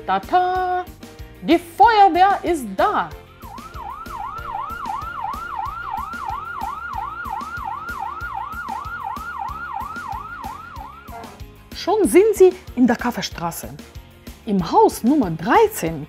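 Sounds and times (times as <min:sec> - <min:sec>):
background music with steady beat: 0:00.0 - 0:16.0
fire engine siren yelping: 0:03.3 - 0:11.4.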